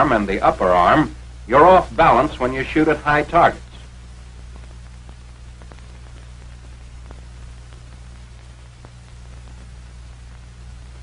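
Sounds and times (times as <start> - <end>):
low hum and hiss: 0.0 - 11.0
faint clicks and crackles: 3.6 - 11.0.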